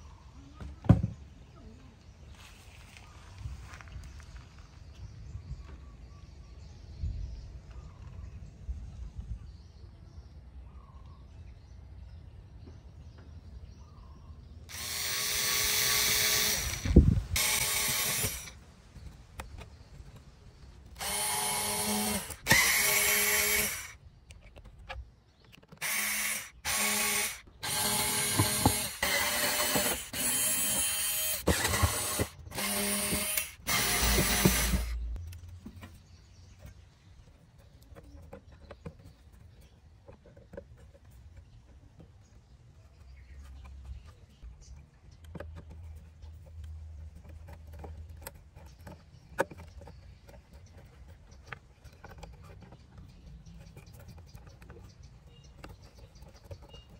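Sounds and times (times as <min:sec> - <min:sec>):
electric screwdriver whirring: 0:14.7 - 0:18.6, 0:20.9 - 0:24.0, 0:25.8 - 0:35.0.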